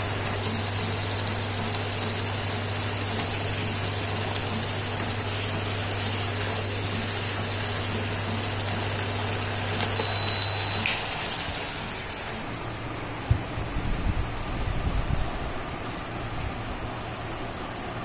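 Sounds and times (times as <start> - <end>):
food sizzling in a pan: 0.0 - 12.4
cooktop low hum: 0.0 - 18.0
short beep: 10.0 - 11.0.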